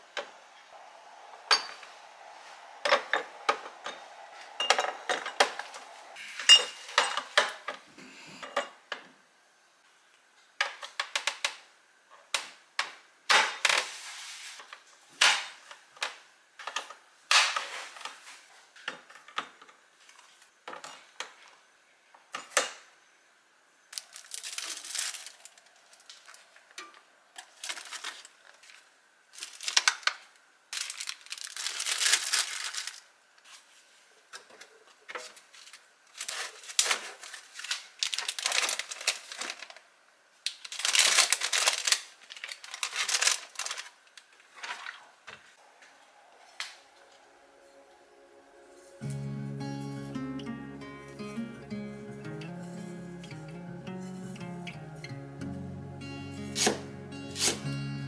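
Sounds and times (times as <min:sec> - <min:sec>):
plastic wrap crinkling: 0:23.9 - 0:26.5, 0:27.4 - 0:33.7, 0:35.3 - 0:45.1.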